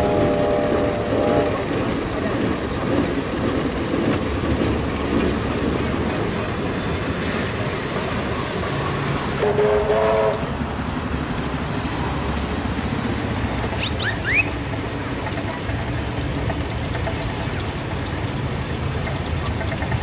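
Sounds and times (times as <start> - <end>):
engines rumbling: 0.0 - 20.0
bird chirping: 13.2 - 14.6.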